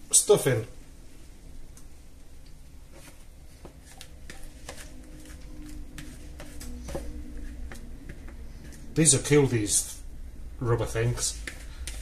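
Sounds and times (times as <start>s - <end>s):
spatula scraping plastic bowl: 2.9s - 9.4s, 11.0s - 12.0s.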